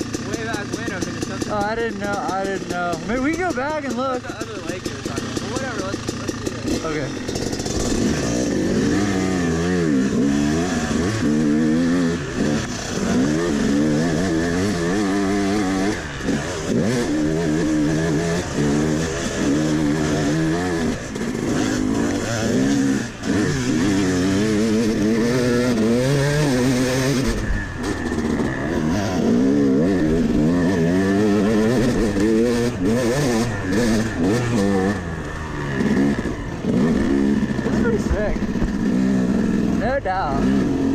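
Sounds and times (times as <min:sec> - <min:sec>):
dirt bike engine revving: 0:00.0 - 0:40.9.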